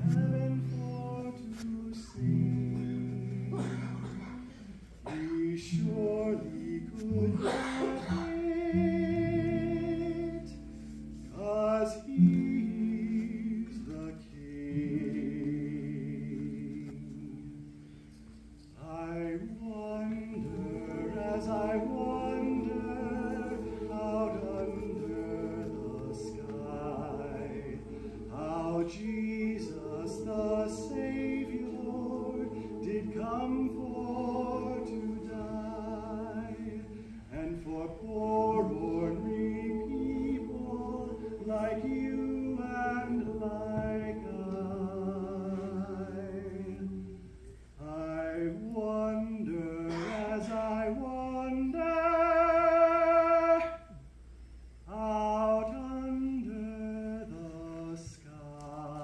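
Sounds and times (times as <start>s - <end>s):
choir singing in harmony: 5.0s - 17.6s, 18.9s - 54.0s.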